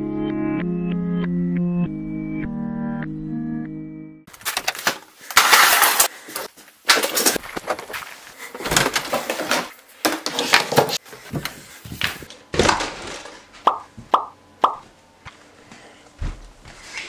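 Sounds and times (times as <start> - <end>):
handling knocks and rustles: 4.3 - 14.1.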